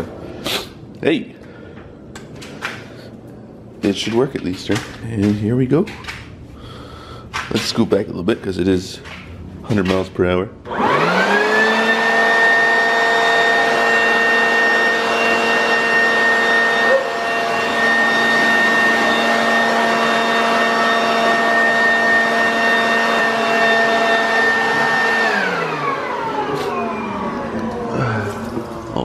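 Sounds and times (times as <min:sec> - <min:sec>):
leaf blower motor whine: 0:10.6 - 0:29.0.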